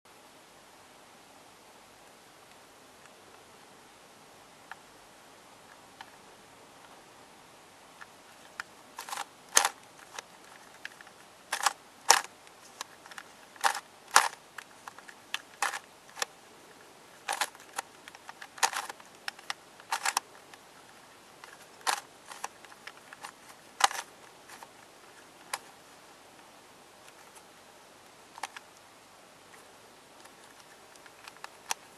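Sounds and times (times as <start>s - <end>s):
plastic puzzle clicking: 8.0s - 16.3s, 17.2s - 25.8s, 28.3s - 28.7s, 30.2s - 31.9s.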